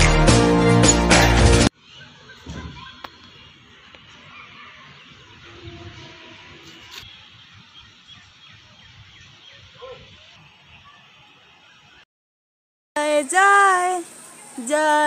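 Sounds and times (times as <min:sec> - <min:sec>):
small birds chirping: 0:01.8 - 0:12.0
steady background hiss: 0:13.0 - 0:15.0.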